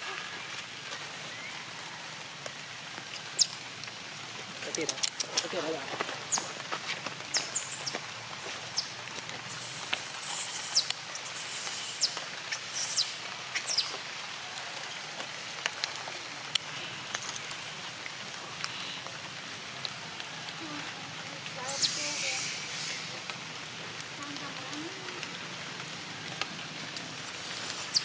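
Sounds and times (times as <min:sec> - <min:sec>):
high-pitched chirping calls: 0:07.3 - 0:08.9, 0:09.5 - 0:13.9, 0:21.7 - 0:23.0, 0:27.0 - 0:28.0.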